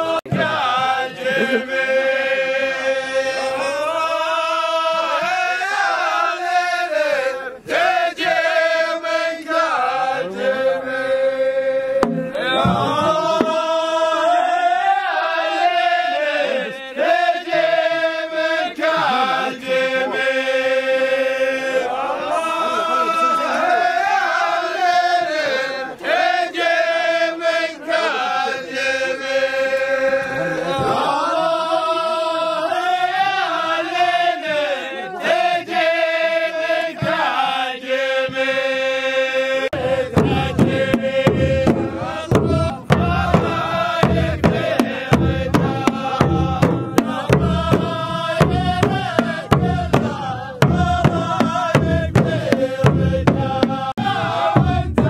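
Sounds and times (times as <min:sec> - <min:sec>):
frame drums beating: 0:00.0 - 0:01.9, 0:12.0 - 0:14.0, 0:39.7 - 0:55.0
men chanting in unison: 0:00.0 - 0:55.0.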